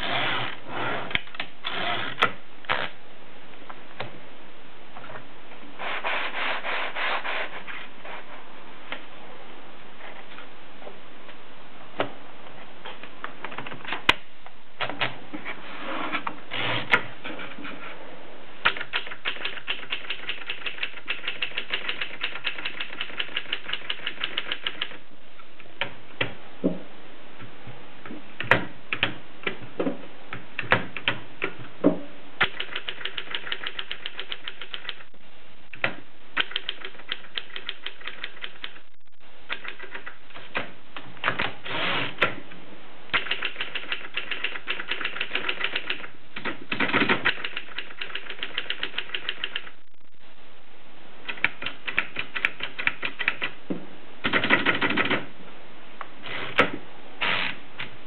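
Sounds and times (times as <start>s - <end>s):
typewriter keys clacking: 18.6s - 25.0s, 32.4s - 35.1s, 36.4s - 38.8s, 39.5s - 40.2s, 43.1s - 49.8s, 51.3s - 53.6s.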